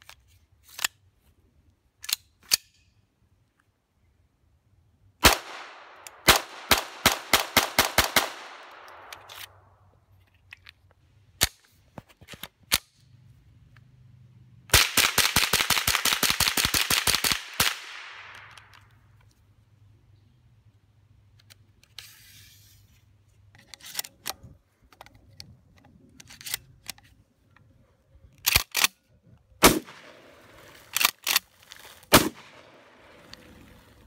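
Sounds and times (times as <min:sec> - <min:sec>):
rapid rifle gunshots: 0:05.2 - 0:08.8, 0:29.6 - 0:30.2
pistol gunshots with echo: 0:05.2 - 0:09.1, 0:29.6 - 0:30.3, 0:32.1 - 0:32.8.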